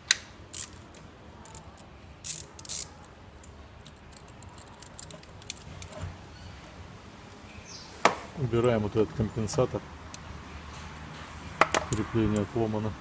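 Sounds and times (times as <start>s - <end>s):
metal parts clicking and rattling: 0.0s - 6.2s.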